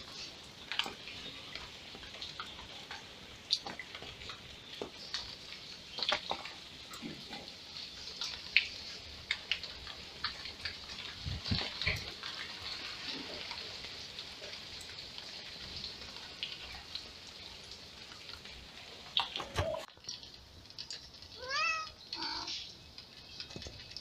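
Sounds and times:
cat mewing: 21.4s - 22.6s.

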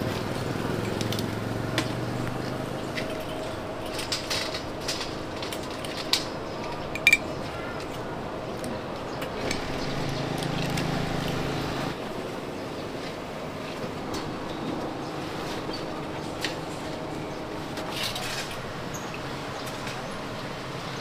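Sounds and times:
metal utensils clinking: 3.0s - 7.4s.

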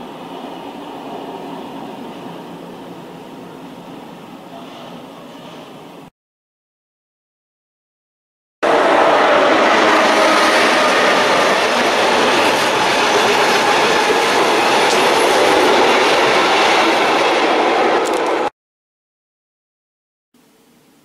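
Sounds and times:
train wheels rolling on rails: 8.7s - 18.5s.

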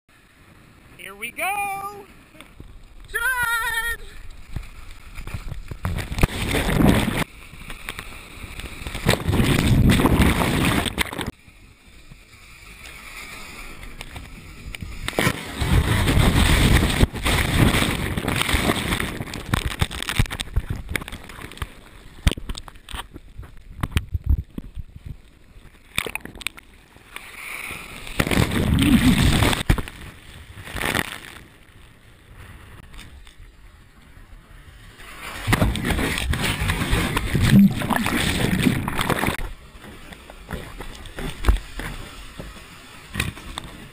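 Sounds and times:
ocean surf rushing water: 0.1s - 4.3s, 34.6s - 43.9s.

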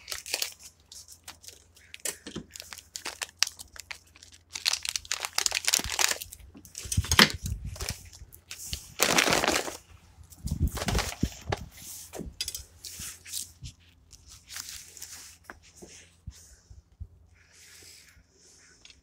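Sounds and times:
plastic packaging crinkling: 0.0s - 11.6s.

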